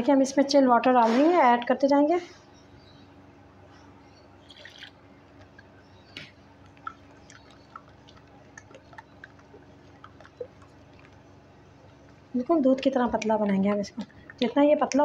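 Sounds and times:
hand mixing wet batter: 3.8 - 15.0.

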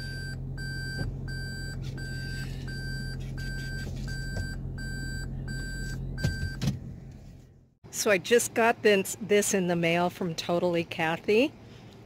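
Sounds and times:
low vehicle hum: 0.0 - 12.0
electronic warning beeps: 0.1 - 6.6.

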